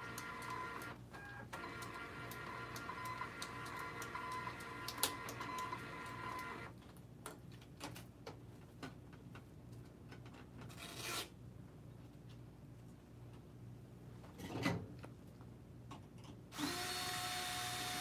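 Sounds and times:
printer mechanism whining: 0.0s - 6.7s.

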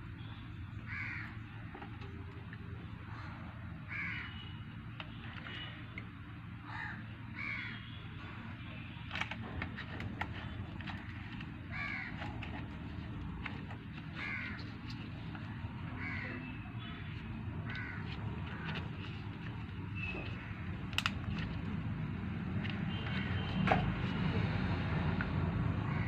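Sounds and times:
crows cawing: 0.9s - 1.5s, 3.1s - 4.5s, 6.6s - 7.9s, 10.9s - 12.8s, 14.1s - 15.0s, 15.9s - 16.7s, 17.6s - 18.8s.

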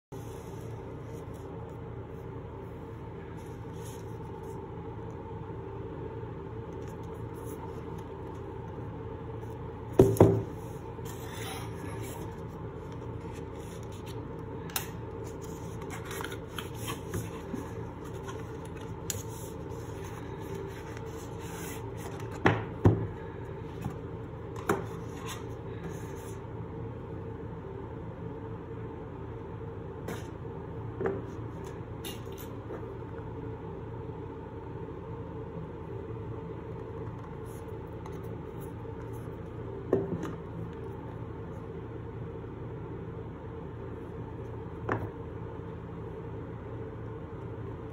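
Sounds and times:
steady hum: 0.1s - 47.9s
cardboard rubbing and sliding: 15.2s - 22.4s.

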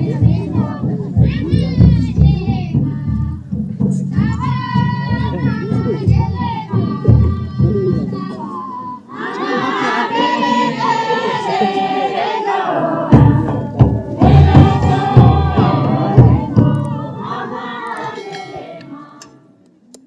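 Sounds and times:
crowd chanting and shouting: 0.0s - 19.6s
heavy low thumps: 13.1s - 17.6s.

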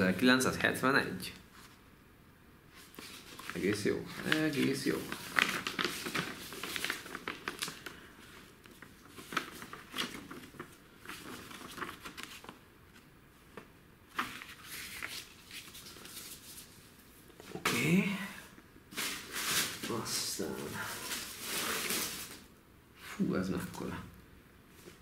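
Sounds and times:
paper rustling and crinkling: 2.7s - 17.9s, 18.9s - 22.5s.

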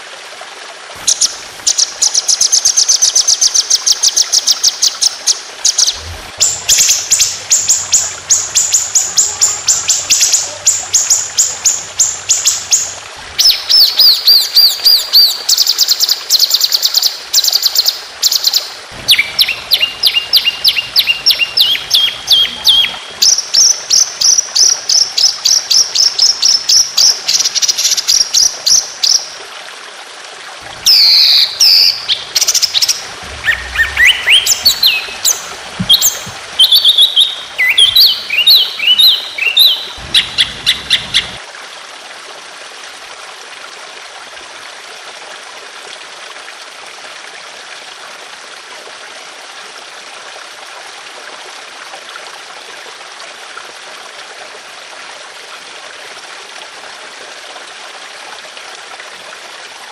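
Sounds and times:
songbird trilling and whistling: 30.8s - 41.4s.

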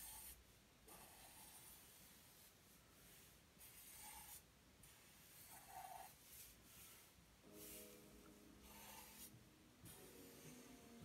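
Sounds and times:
pen scratching on paper: 0.0s - 8.0s, 8.6s - 10.8s.

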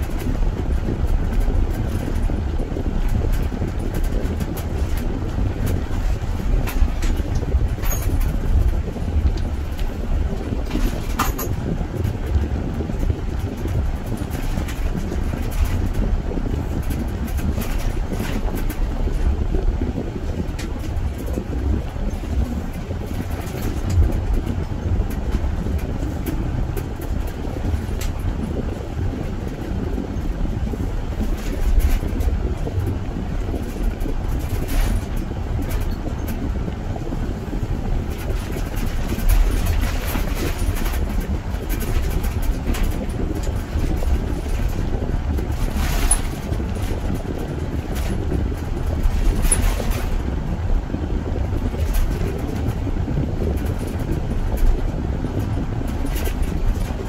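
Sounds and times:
car engine and tyres rumbling: 0.0s - 57.0s.

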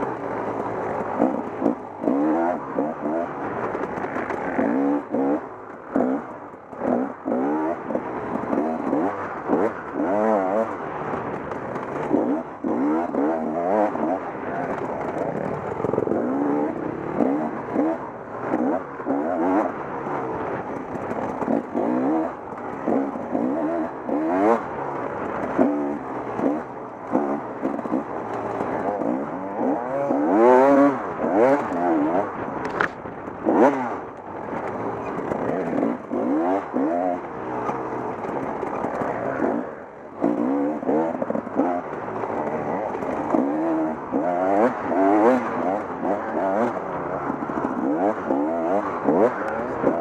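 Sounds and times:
dirt bike engine revving: 0.0s - 50.0s.

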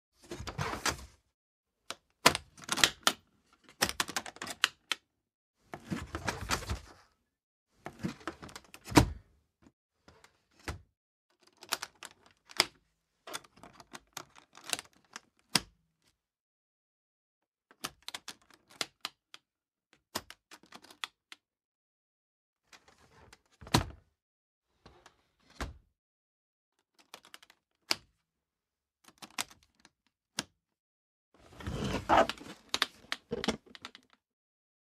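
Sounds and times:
case lid and hinges clacking: 31.6s - 33.6s.

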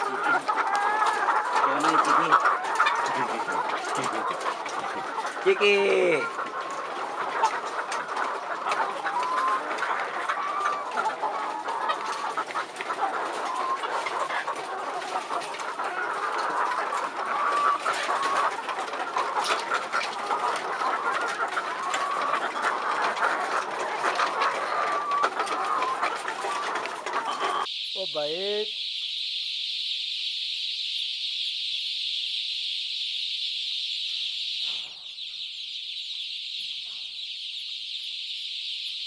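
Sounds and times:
hens clucking in chorus: 0.0s - 28.7s.

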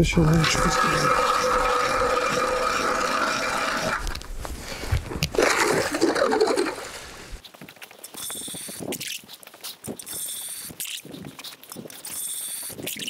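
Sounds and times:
ice auger drilling whine: 0.3s - 4.3s
ice scraping and crunching: 0.4s - 13.0s.

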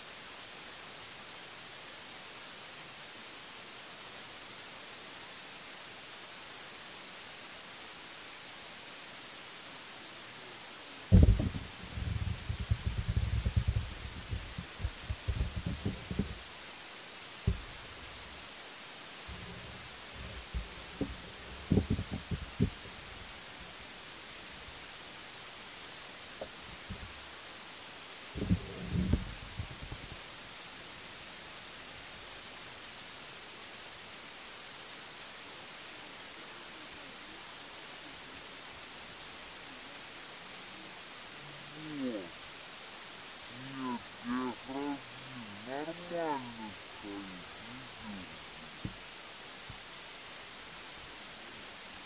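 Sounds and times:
steady hiss: 0.0s - 52.0s
thumps on microphone: 11.1s - 16.4s, 17.5s - 17.7s, 20.2s - 22.8s
faint low bumps: 11.1s - 16.6s, 17.4s - 18.4s, 19.2s - 24.9s, 26.4s - 27.3s, 28.3s - 30.4s, 43.5s - 49.9s.

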